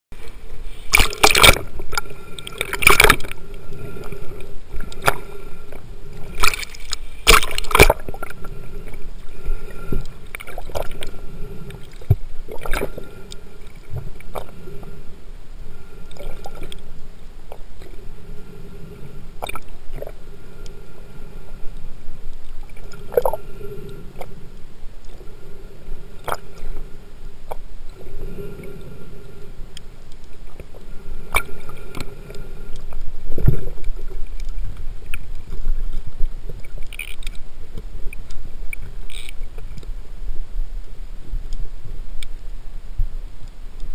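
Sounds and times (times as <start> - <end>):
faint steady hum: 0.1 - 43.9
sharp clicks underwater: 0.2 - 15.0, 19.4 - 20.8, 21.7 - 24.4, 26.2 - 28.0, 29.7 - 39.9
underwater gurgling: 0.2 - 43.9
water splashing on camera: 0.8 - 5.6, 6.2 - 14.8.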